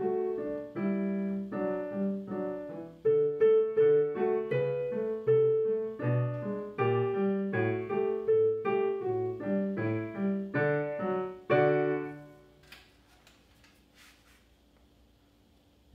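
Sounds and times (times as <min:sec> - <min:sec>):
digital piano notes and chords: 0:00.0 - 0:12.4.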